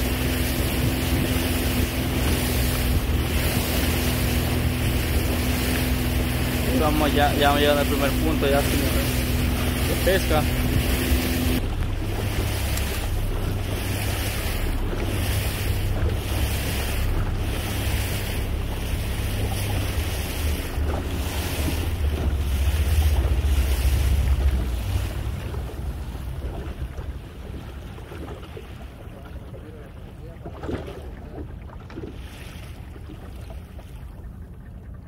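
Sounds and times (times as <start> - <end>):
low boat engine rumble: 0.0 - 35.0
water rushing past hull: 0.0 - 35.0
wind buffeting microphone: 0.0 - 35.0.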